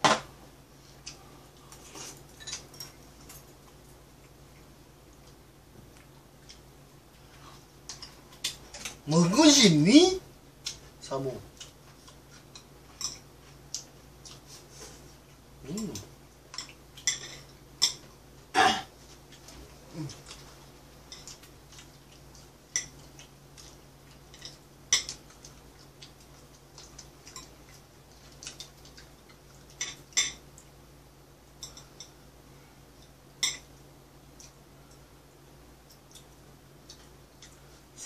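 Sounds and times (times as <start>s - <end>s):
low steady hum: 0.0s - 38.0s
cutlery clinking on plates: 2.3s - 3.4s.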